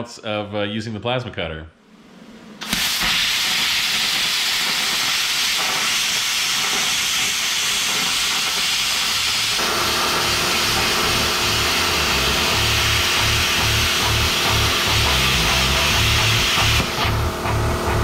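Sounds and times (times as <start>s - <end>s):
low hum: 1.8s - 2.6s, 9.6s - 18.0s
plasma cutter hissing: 2.6s - 17.6s.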